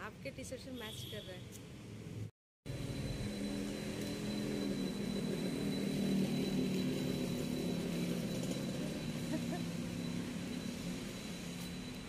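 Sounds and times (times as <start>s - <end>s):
high-pitched whine: 2.7s - 12.0s
vehicle engine humming: 2.7s - 12.0s.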